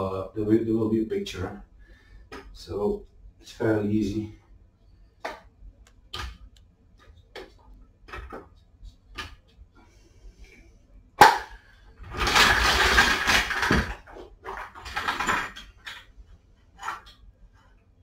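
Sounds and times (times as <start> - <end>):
jack wheels scraping and rattling: 12.0 - 15.9.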